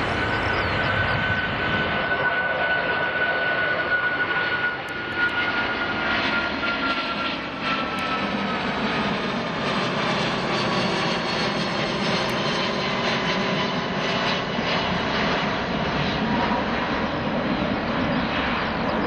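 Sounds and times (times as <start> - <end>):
jet engine roar: 0.0 - 19.0.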